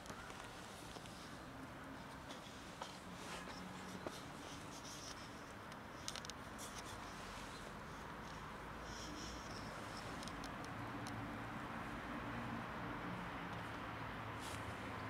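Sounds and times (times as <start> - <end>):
soft clicks: 10.1 - 11.2.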